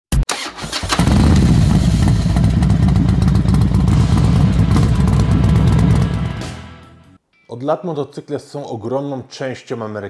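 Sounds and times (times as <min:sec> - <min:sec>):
motorcycle engine cranking: 0:00.3 - 0:04.0
motorcycle engine rumbling: 0:00.9 - 0:06.8.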